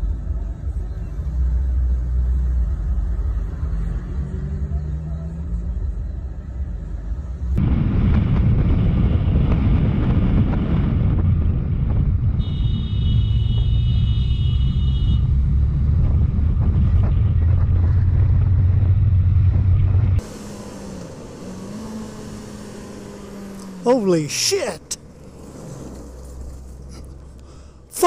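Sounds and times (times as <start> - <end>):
wind buffeting microphone: 7.6 - 12.5
motorcycle engine rumbling: 7.6 - 28.0.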